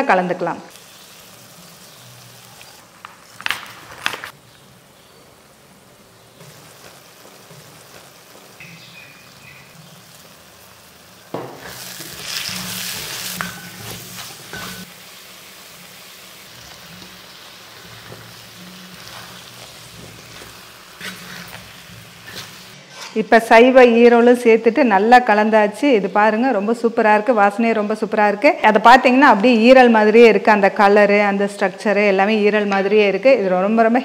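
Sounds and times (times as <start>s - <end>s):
masala sizzling in a pan: 0.7s - 23.1s
wooden spoon scraping: 11.6s - 14.9s, 16.7s - 23.2s.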